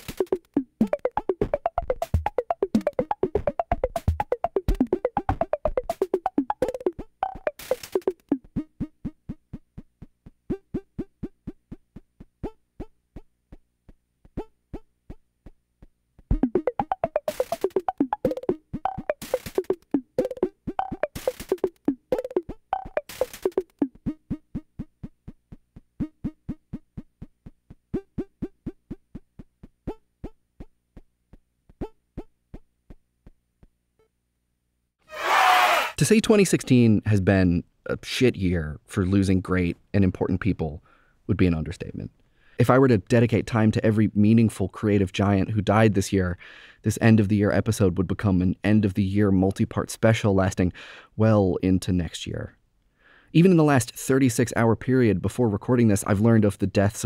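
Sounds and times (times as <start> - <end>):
chiptune blips: 0.0 - 9.6, 10.5 - 11.6, 16.3 - 24.9, 27.9 - 29.0.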